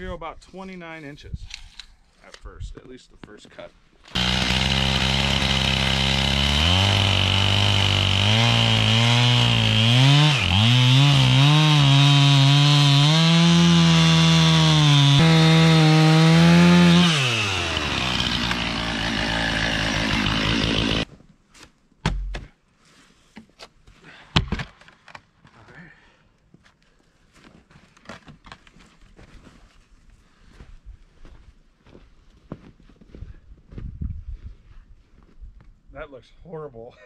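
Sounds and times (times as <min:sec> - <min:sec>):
chainsaw cutting through log: 0:04.1 - 0:21.1.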